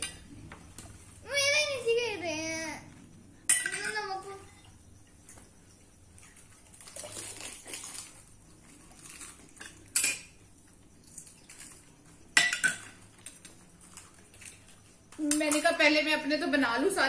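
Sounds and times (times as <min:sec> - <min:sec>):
spoons clinking against bowls: 0:03.5 - 0:04.1, 0:09.5 - 0:10.4, 0:12.3 - 0:14.6, 0:15.2 - 0:16.0.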